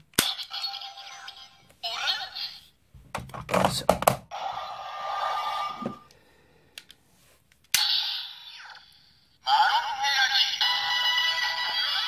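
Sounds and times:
electronic toy music: 0:09.5 - 0:12.0.

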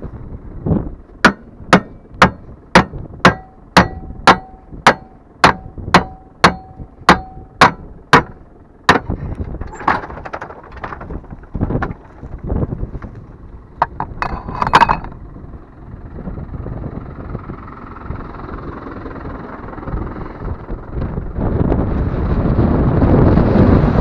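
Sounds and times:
hammer striking steel latch: 0:01.2 - 0:09.1
tailgate dropping open: 0:08.9 - 0:13.2.

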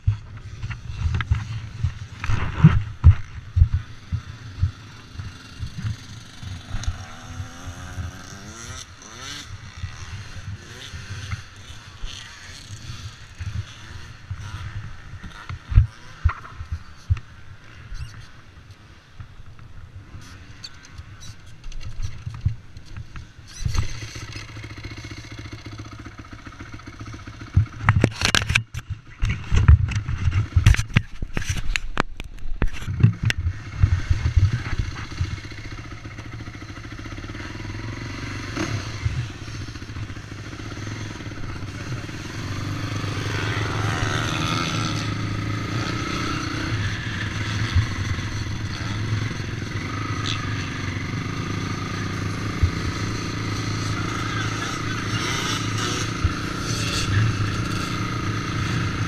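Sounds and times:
quad engine running: 0:00.0 - 0:18.2, 0:21.6 - 0:59.0.

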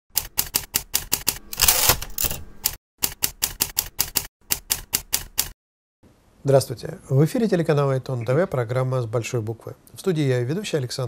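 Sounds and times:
typewriter keys striking: 0:00.2 - 0:05.6.

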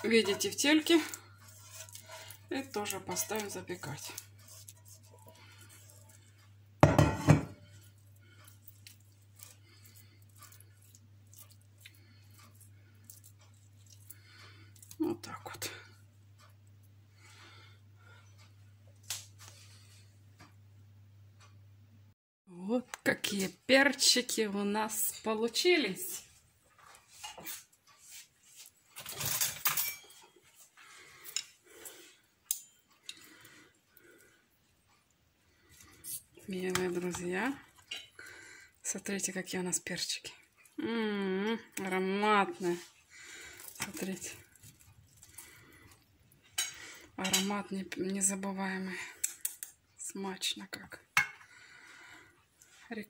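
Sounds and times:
dishes clattering: 0:06.8 - 0:07.6, 0:29.0 - 0:30.4.

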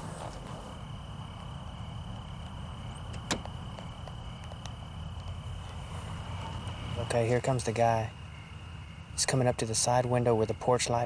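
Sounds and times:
crickets trilling: 0:00.0 - 0:11.0
low steady rumble: 0:00.0 - 0:11.0.

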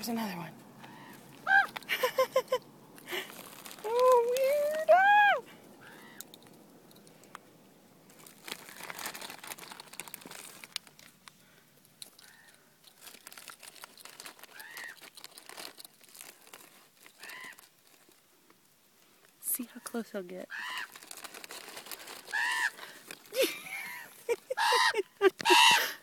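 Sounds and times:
crinkling and rustling: 0:00.0 - 0:05.1, 0:06.0 - 0:25.6
raven calls: 0:00.8 - 0:01.8, 0:05.6 - 0:06.3, 0:12.2 - 0:12.8, 0:14.5 - 0:15.0, 0:17.2 - 0:17.7, 0:20.5 - 0:21.0, 0:22.2 - 0:23.0, 0:24.6 - 0:26.0.

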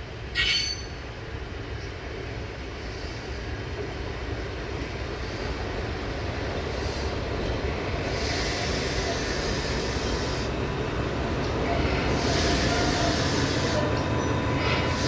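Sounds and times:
diesel locomotive engine running: 0:00.0 - 0:15.0
higher hiss: 0:04.9 - 0:10.6, 0:11.7 - 0:15.0.

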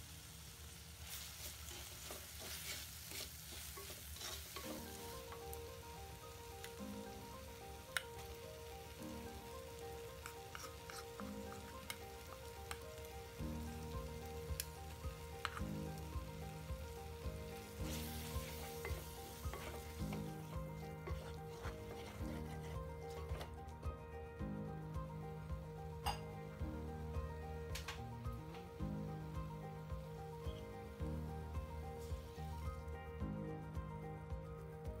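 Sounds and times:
onions and tomatoes sizzling in oil: 0:00.0 - 0:35.0
wooden spatula scraping pot: 0:01.1 - 0:05.1, 0:10.2 - 0:12.8, 0:17.4 - 0:23.6
quiet instrumental music: 0:04.2 - 0:35.0.

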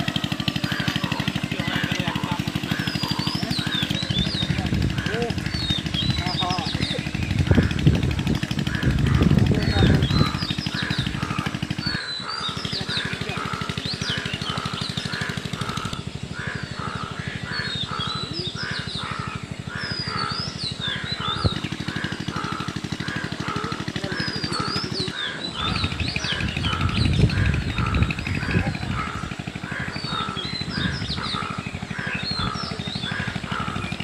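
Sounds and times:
birds chirping: 0:00.0 - 0:34.0
crows cawing: 0:00.0 - 0:34.0
loud low noise: 0:00.0 - 0:34.0.

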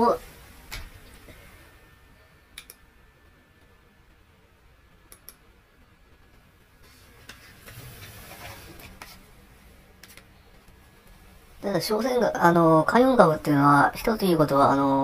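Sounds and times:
soft rustling hiss: 0:00.0 - 0:15.0
faint sharp clicks: 0:02.6 - 0:02.8, 0:05.1 - 0:05.4.

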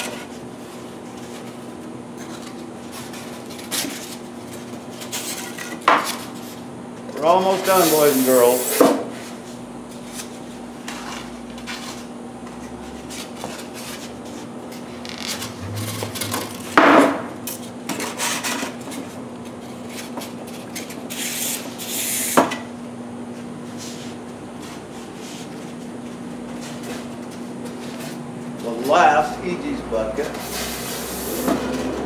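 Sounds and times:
steady low hum: 0:09.3 - 0:17.8
squeaky foam rubbing: 0:15.0 - 0:16.8.

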